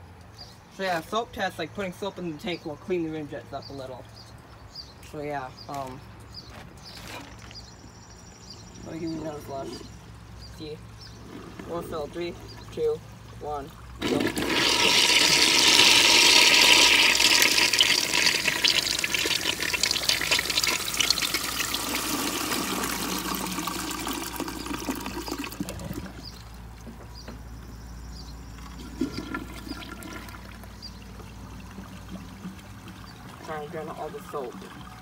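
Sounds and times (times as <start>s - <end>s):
water running: 11.2s - 26.8s, 28.6s - 35.0s
toilet flushing: 13.9s - 26.2s, 28.6s - 35.0s.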